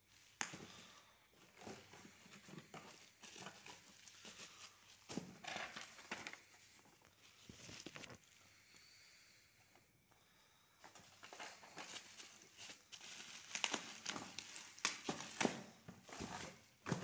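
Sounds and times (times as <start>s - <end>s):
bubble wrap crinkling: 1.4s - 8.3s, 11.1s - 17.0s.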